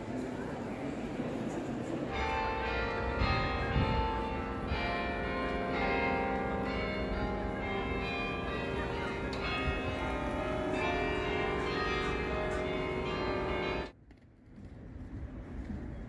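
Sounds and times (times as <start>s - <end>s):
church bells pealing: 2.0s - 14.0s.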